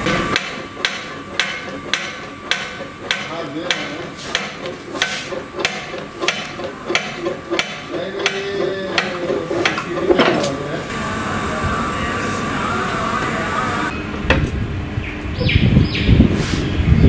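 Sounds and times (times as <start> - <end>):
metal pedal clacking: 0.0 - 10.6.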